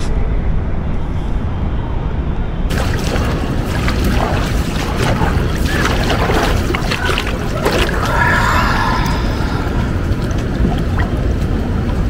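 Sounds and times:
wind buffeting microphone: 0.2s - 12.0s
water splashing in a pool: 2.7s - 12.0s.

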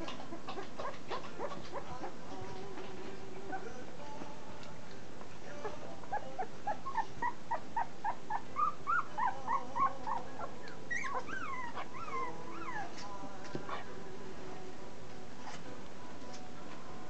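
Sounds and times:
puppies squeaking: 0.0s - 2.2s, 3.4s - 3.9s, 5.6s - 13.9s
puppies whining: 0.0s - 2.2s, 3.4s - 3.9s, 5.5s - 14.0s.

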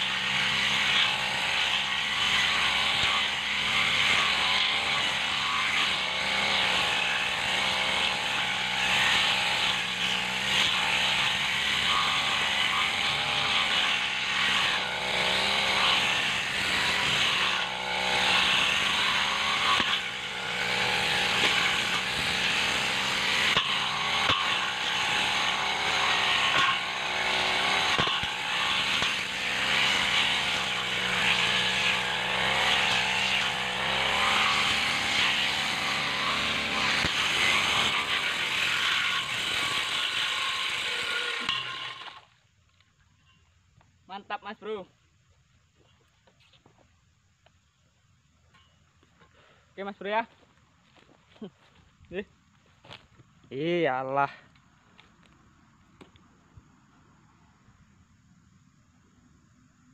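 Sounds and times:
brush cutter engine running hard: 0.0s - 42.3s.

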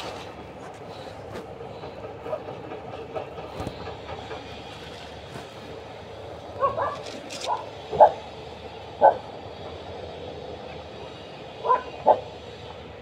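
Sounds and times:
dog barking: 6.6s - 8.2s, 9.0s - 9.2s, 11.6s - 12.2s.

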